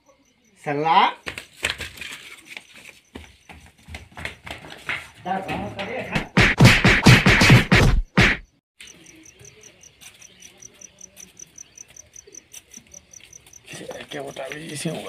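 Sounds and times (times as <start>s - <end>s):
cricket chirping: 0.0s - 1.6s, 8.8s - 15.0s.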